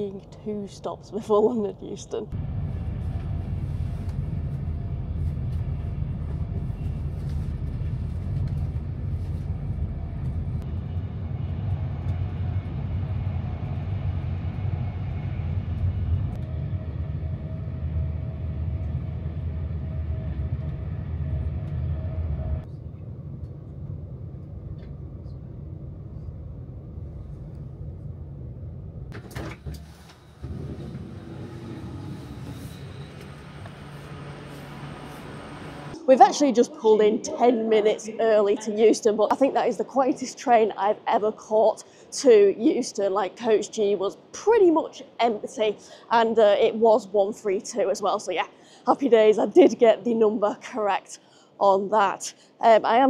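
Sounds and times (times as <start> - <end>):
train running rumble: 2.3 - 36.0.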